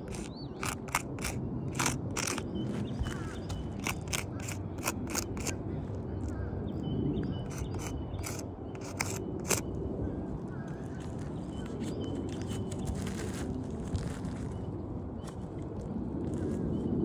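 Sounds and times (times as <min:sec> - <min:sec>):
clicks and scuffs on shingle roof: 0:00.0 - 0:05.6, 0:07.5 - 0:09.7, 0:10.6 - 0:14.6
steady low rumble: 0:00.0 - 0:17.0.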